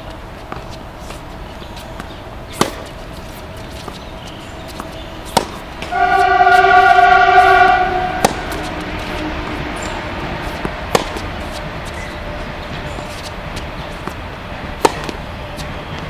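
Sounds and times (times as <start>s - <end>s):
tennis ball bouncing: 0.4s - 16.0s
tennis racket hitting ball: 0.4s - 16.0s
horn blast: 5.8s - 12.6s.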